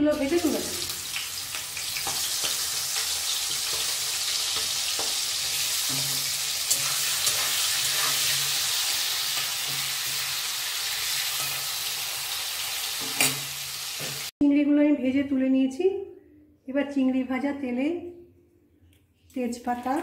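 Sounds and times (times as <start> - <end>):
prawns sizzling in hot oil: 0.0 - 14.3.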